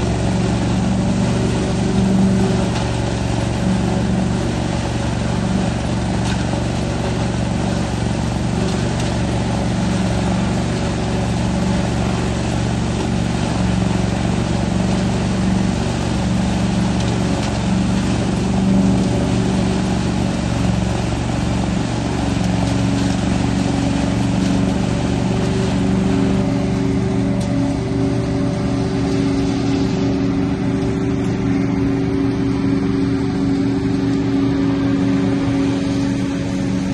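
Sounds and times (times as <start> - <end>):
engine drone: 0.0 - 36.9
vacuum rushing noise: 18.0 - 36.9.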